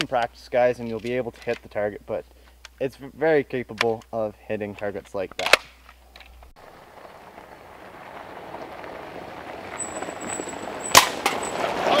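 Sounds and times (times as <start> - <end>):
tyres crunching on gravel: 6.3 - 12.0
atv engine approaching: 6.6 - 12.0.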